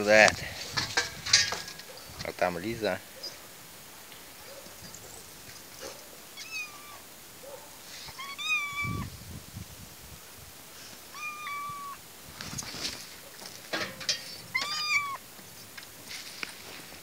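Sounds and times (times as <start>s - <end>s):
cat meowing: 6.4s - 7.1s, 8.1s - 9.1s, 11.1s - 12.0s, 14.5s - 15.2s.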